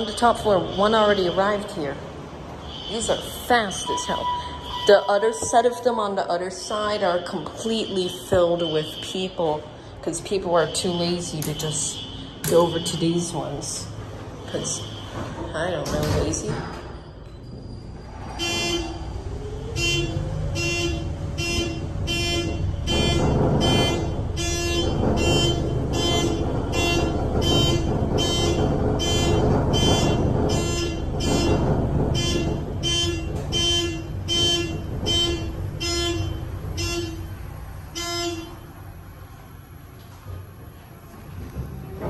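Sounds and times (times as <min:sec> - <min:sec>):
elevator hum and rumble: 0:00.0 - 0:42.0
fire alarm horn blasts: 0:02.6 - 0:05.5, 0:07.6 - 0:09.5, 0:10.3 - 0:13.4, 0:14.6 - 0:15.5, 0:18.4 - 0:19.0, 0:19.7 - 0:38.8.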